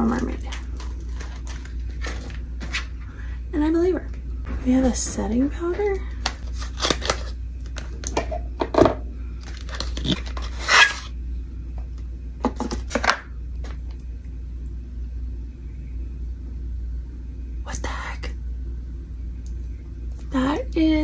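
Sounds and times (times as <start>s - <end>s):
card rustling: 0.5s - 2.9s.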